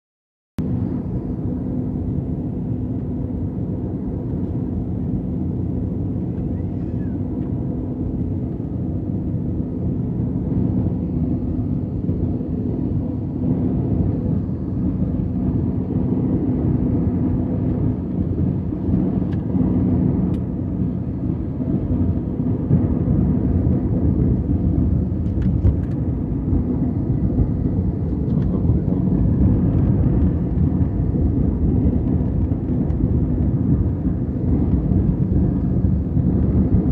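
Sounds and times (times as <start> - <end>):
airliner cabin engine rumble: 0.6 - 36.9
steady hums: 0.6 - 36.9.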